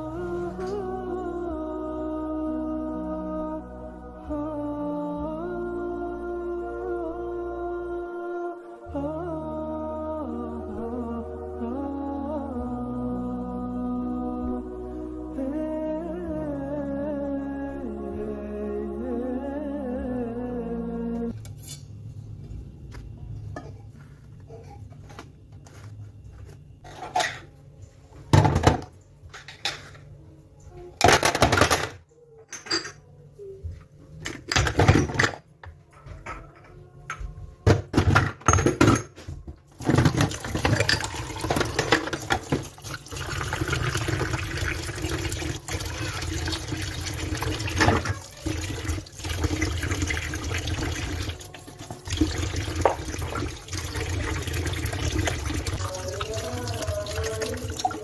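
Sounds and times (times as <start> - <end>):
water pouring into jars: 39.8 - 58.0
tap water splashing into sink: 52.1 - 55.8.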